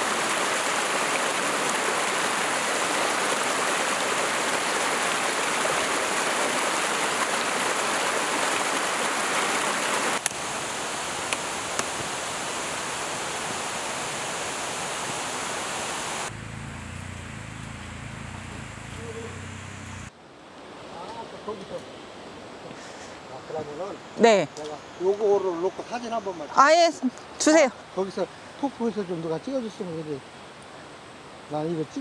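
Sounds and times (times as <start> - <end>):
stream rushing over boulders: 0.0 - 32.0
steady hiss: 10.1 - 26.2.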